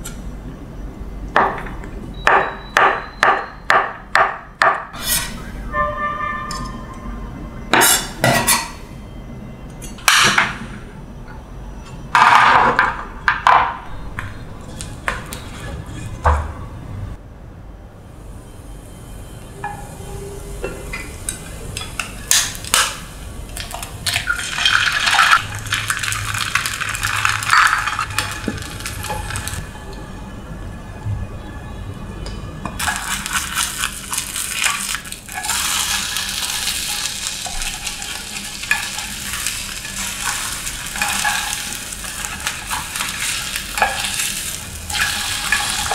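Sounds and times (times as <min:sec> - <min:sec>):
bread sizzling in hot oil: 0:24.1 - 0:29.6, 0:32.8 - 0:45.9.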